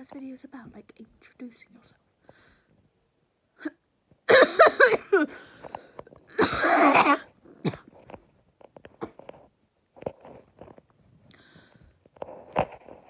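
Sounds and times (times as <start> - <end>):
girl coughing: 4.3 - 5.4, 6.3 - 7.9.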